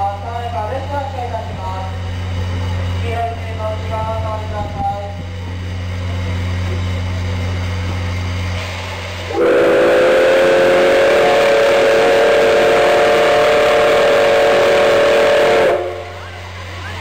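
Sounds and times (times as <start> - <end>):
steam venting: 0.6 - 17.0
steam locomotive whistle: 9.3 - 16.5.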